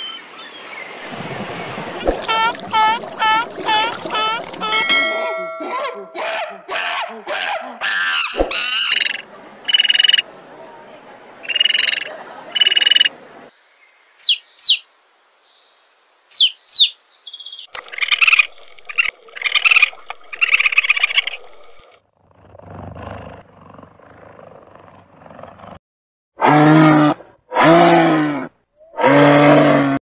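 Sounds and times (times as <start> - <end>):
animal croaking bursts: 2.0 - 5.6, 26.4 - 30.0
harsh repeated animal calls: 26.4 - 30.0.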